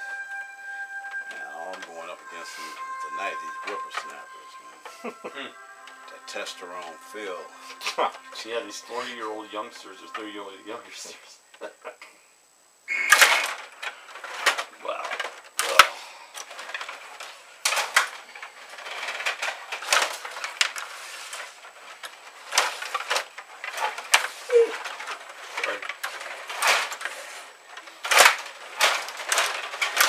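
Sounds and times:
plastic table hockey players clacking: 13.1 - 30.0.

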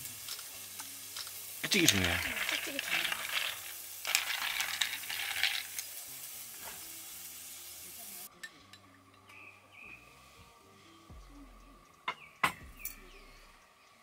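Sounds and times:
fizzing hiss: 0.0 - 8.3
spoon clinking ice in glass: 1.8 - 5.8.

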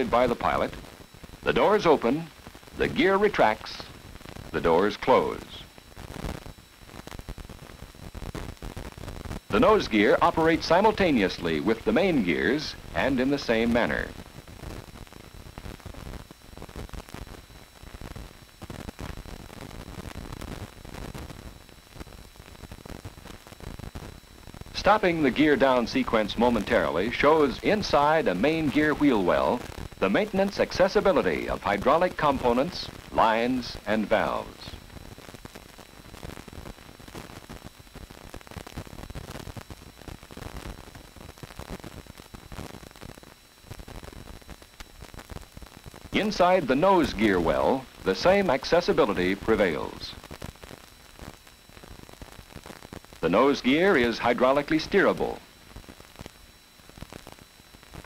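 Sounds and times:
faint steady high tones: 0.0 - 58.0
film soundtrack hiss and crackle: 0.0 - 58.0.

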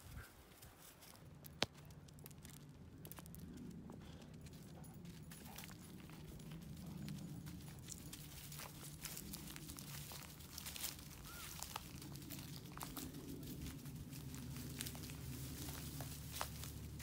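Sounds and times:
low steady hum: 0.1 - 17.0
footsteps crunching dry leaves: 5.2 - 17.0.

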